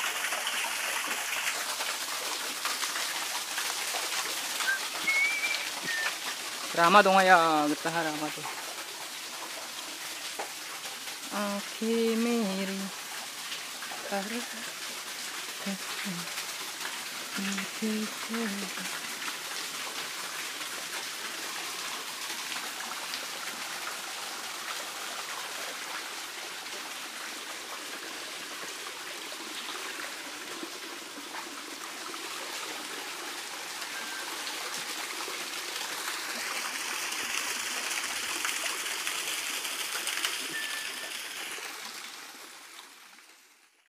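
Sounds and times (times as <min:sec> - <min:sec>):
stream trickling over stones: 0:00.0 - 0:43.9.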